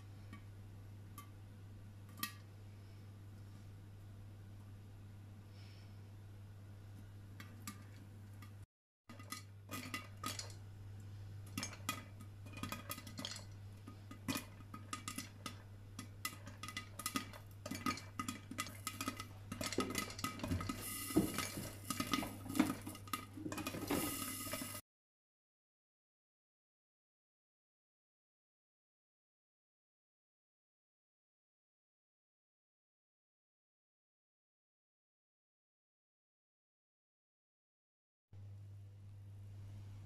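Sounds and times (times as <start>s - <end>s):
oil sizzling: 7.0s - 24.8s
popcorn popping: 7.3s - 10.8s, 11.4s - 24.8s.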